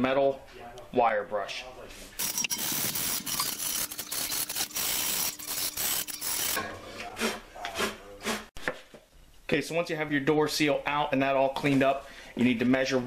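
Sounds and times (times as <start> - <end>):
wire brush scrubbing metal: 2.2 - 6.7.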